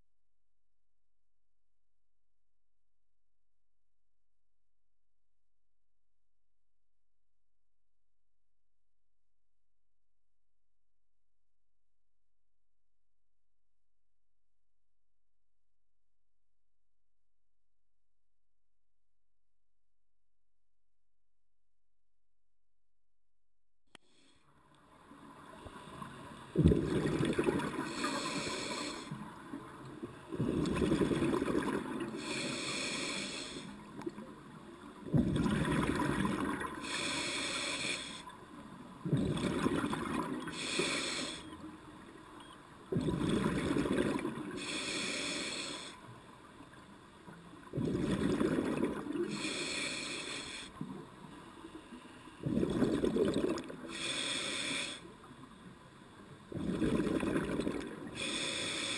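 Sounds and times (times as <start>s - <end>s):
exhaled bubbles rushing: 26.6s - 28.0s, 30.4s - 32.2s, 35.1s - 36.8s, 39.0s - 40.6s, 43.0s - 44.5s, 47.7s - 49.3s, 52.4s - 53.8s, 56.5s - 58.1s
air hissing through regulator: 27.9s - 29.2s, 32.2s - 33.7s, 36.8s - 38.2s, 40.5s - 41.5s, 44.6s - 46.0s, 49.3s - 50.7s, 53.9s - 55.1s, 58.2s - 58.9s.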